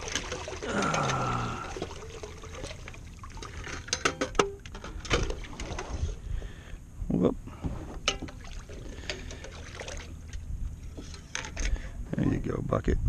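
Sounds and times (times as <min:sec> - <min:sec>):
water pouring and trickling: 0:00.0 - 0:06.2, 0:08.1 - 0:11.8.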